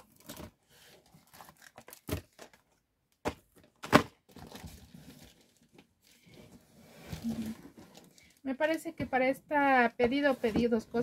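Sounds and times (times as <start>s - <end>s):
packaging crinkling and rustling: 0.0s - 6.3s, 7.1s - 8.8s.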